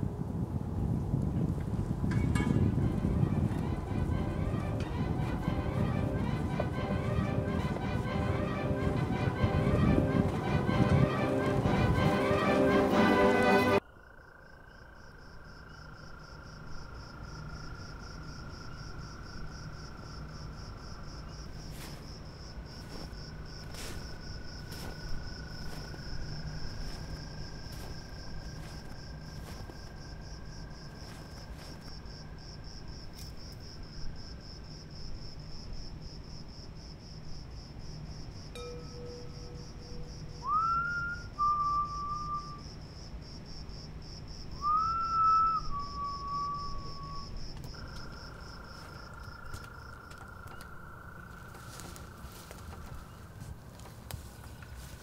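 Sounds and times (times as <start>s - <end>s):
crickets trilling: 1.7s - 55.0s
low hum: 2.0s - 13.8s
long held tones: 2.3s - 13.8s, 38.6s - 42.6s
rising whistled notes: 2.3s - 13.8s, 38.6s - 42.6s, 44.6s - 47.3s.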